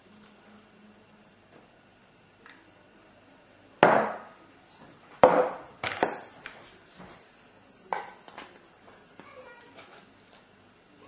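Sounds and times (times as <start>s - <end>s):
tableware knocking on stone worktop: 5.2s - 6.2s.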